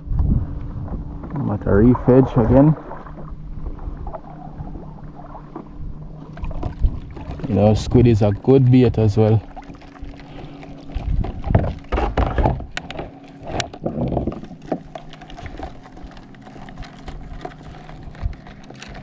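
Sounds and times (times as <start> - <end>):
paddle knocking on plastic hull: 10.9 - 15.8.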